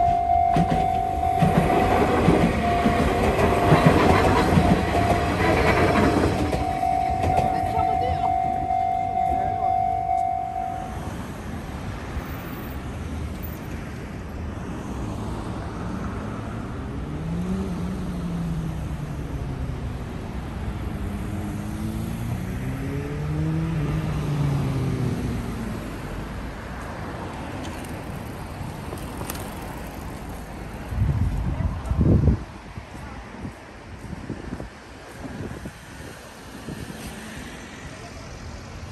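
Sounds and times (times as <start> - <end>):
steady tone: 0.0 - 11.2
cars passing by: 0.0 - 38.9
road traffic hum: 0.0 - 38.9.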